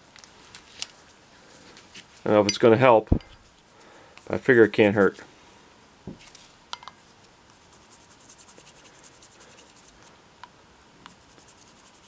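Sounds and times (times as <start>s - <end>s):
toothbrush scrubbing wood: 4.2s - 5.2s, 7.5s - 10.1s, 11.1s - 12.0s.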